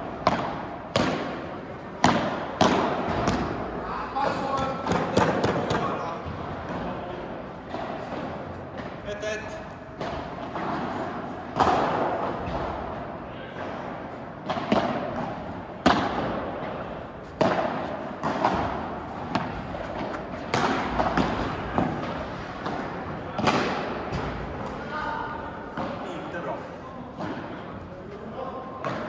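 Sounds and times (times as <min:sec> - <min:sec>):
rackets hitting ball: 0:00.0 - 0:27.9, 0:28.7 - 0:29.0
ball bouncing off court: 0:10.0 - 0:12.9, 0:14.4 - 0:24.8.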